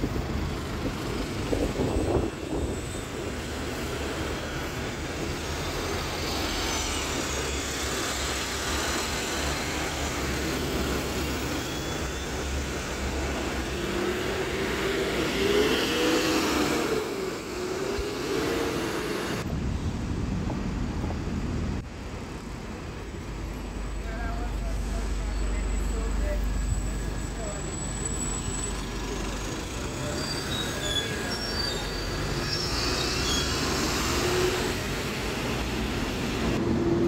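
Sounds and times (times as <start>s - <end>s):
traffic rumble and road noise: 0.0s - 37.0s
rising and falling whine: 1.8s - 19.5s.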